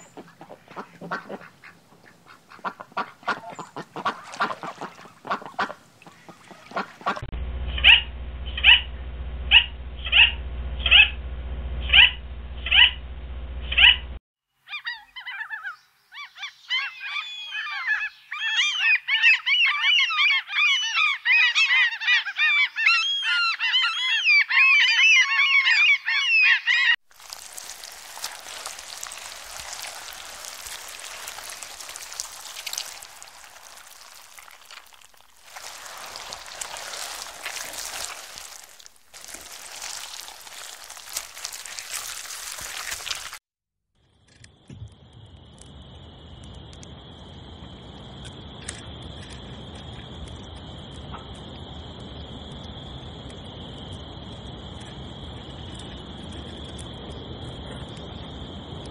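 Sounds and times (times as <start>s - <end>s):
steady outdoor hiss: 27.1s - 43.3s, 44.5s - 58.9s.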